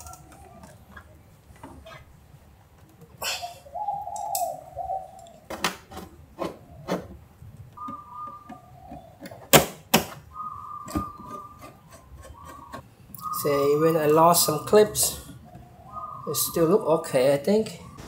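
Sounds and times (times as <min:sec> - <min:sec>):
faint whistle-like tones: 0:07.8 - 0:09.0, 0:10.2 - 0:15.3.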